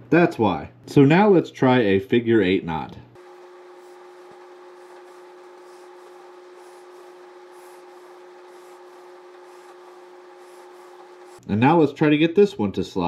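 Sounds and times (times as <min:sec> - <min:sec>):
quiet steady hum: 0:03.0 - 0:11.5
fingers rubbing fishing line: 0:03.2 - 0:11.4.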